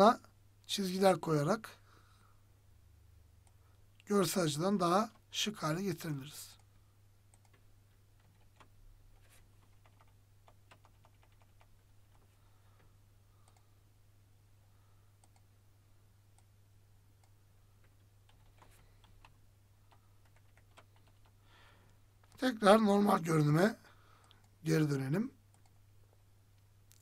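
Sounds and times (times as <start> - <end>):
low steady hum: 0.0 - 27.0
computer mouse clicks: 7.3 - 10.1, 13.4 - 13.7, 15.2 - 15.5.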